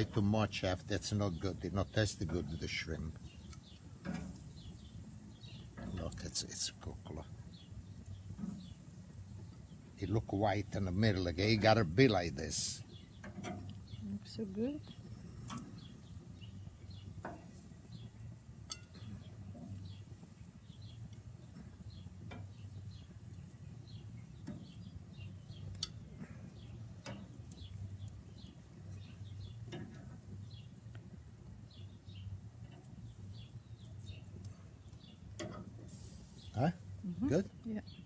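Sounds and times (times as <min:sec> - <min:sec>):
small birds chirping: 0:00.0 - 0:38.0.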